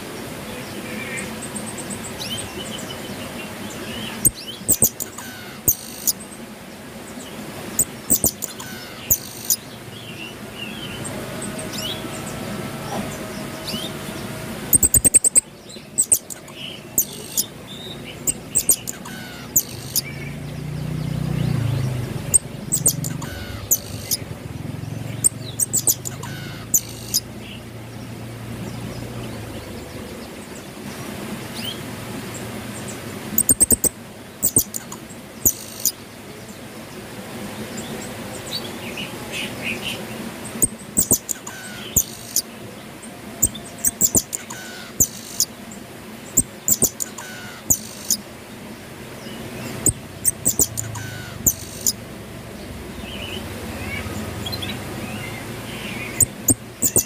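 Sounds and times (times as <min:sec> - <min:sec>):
high-pitched bird chirps: 0:03.9 - 0:06.2, 0:07.8 - 0:09.6, 0:14.7 - 0:20.4, 0:22.3 - 0:24.3, 0:25.1 - 0:27.3, 0:33.4 - 0:36.0, 0:40.6 - 0:42.4, 0:43.4 - 0:45.5, 0:46.4 - 0:48.2, 0:49.8 - 0:52.0, 0:56.1 - 0:57.0.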